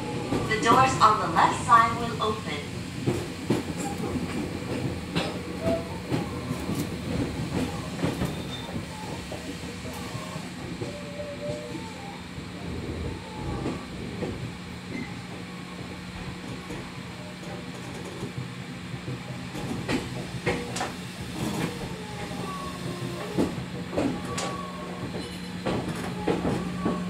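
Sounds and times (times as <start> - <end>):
train motor and gear hum: 0.0 - 27.0
wheels clicking over rail joints: 16.2 - 27.0.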